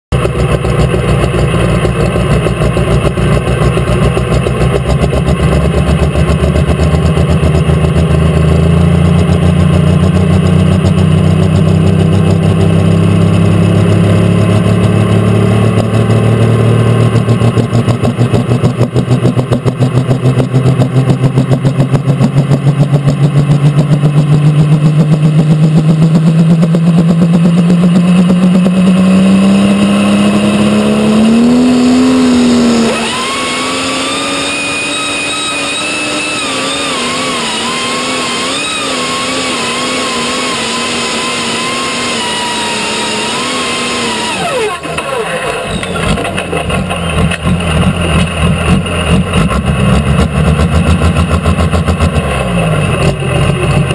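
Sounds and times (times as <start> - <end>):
tractor diesel engine running: 0.1 - 53.9.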